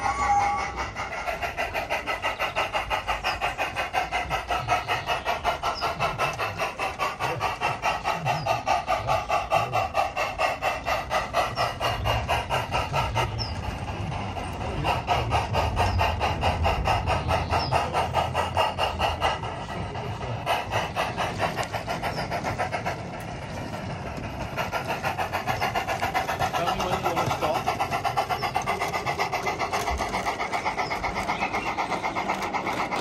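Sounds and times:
steam exhaust chuffs from loudspeaker: 0:00.0 - 0:33.0.

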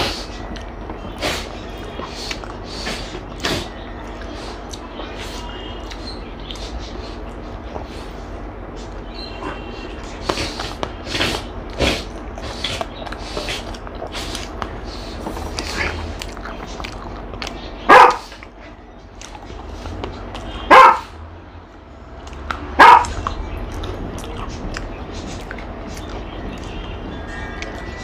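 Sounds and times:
dog eating: 0:09.4 - 0:21.0, 0:22.2 - 0:28.0
dog barking: 0:17.8 - 0:18.3, 0:20.6 - 0:21.2, 0:22.8 - 0:23.3.

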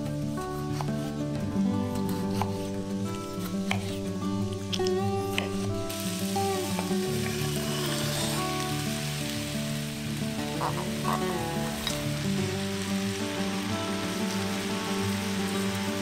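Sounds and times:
tomatoes sliding off wooden board: 0:00.5 - 0:06.0
vegetables sizzling in a frying pan: 0:02.2 - 0:16.0.

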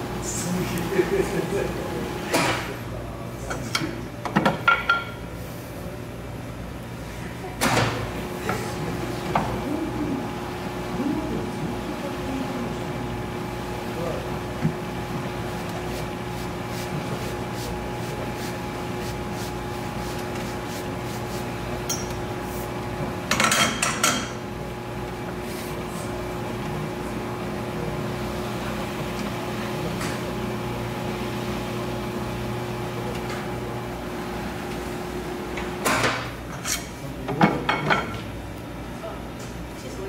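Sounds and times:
machine humming: 0:05.8 - 0:23.3.

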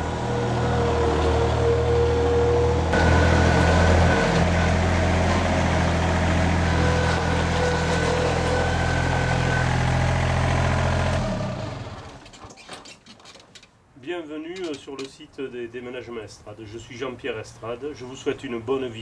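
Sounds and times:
forklift engine running: 0:00.0 - 0:12.2.

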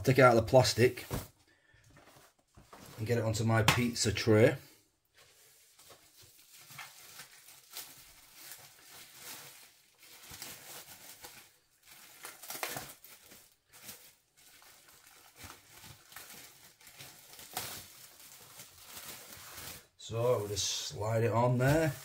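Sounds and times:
plastic wrap crinkling: 0:05.1 - 0:22.0.

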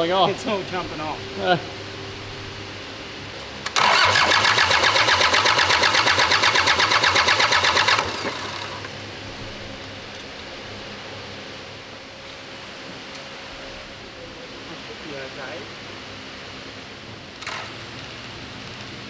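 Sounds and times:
diesel engine cranking: 0:03.6 - 0:09.0.

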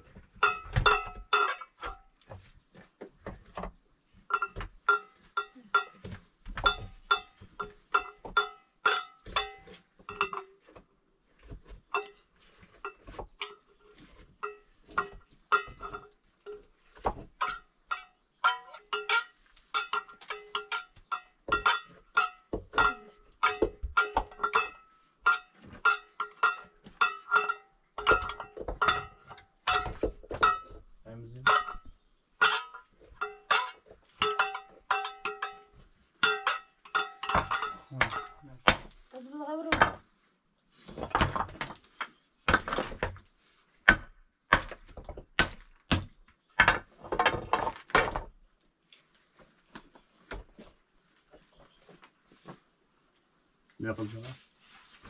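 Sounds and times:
metallic clinking: 0:17.4 - 0:38.8.

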